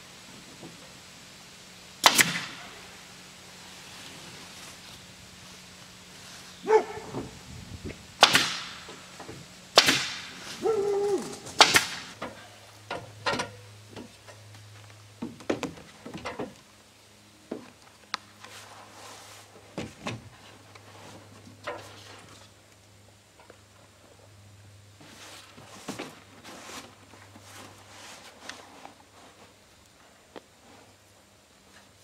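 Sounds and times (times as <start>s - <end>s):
nail gun shots into wood: 2.0s - 2.6s, 8.2s - 8.8s, 9.8s - 10.4s, 11.6s - 12.1s
clicks and knocks of roofing work: 15.2s - 16.6s.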